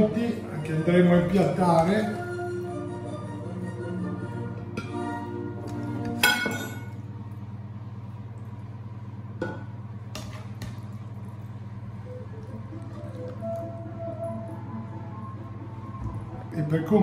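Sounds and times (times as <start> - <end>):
spoon clinking against dishware: 6.2 - 7.0.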